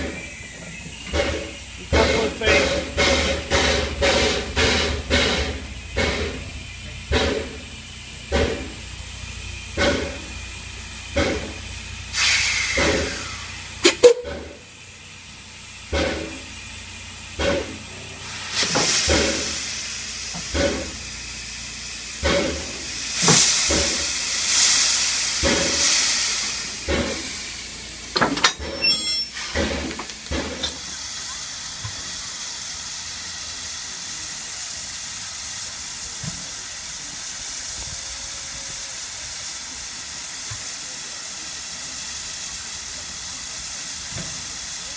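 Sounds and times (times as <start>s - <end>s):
steam locomotive exhaust chuffs: 0.0s - 44.9s
steam venting hiss: 0.0s - 44.9s.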